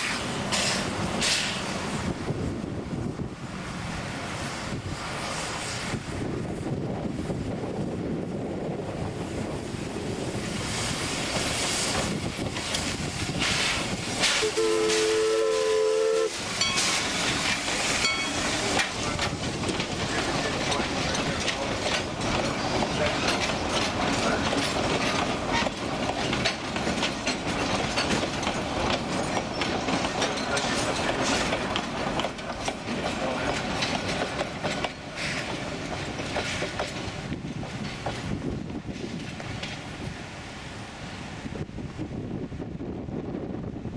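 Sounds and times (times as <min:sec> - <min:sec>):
steam locomotive passing: 0:00.0 - 0:43.9
steam whistle blowing: 0:14.3 - 0:17.0
wheels clicking over rail joints: 0:16.3 - 0:40.1.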